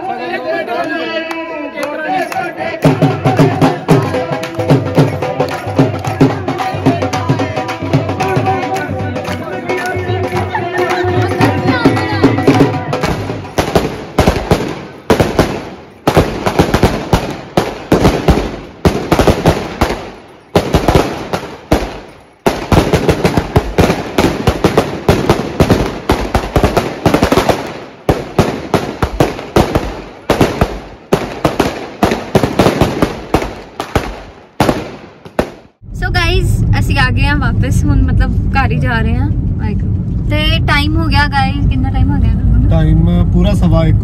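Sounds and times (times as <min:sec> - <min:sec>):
firecrackers cracking: 0:02.4 - 0:35.8.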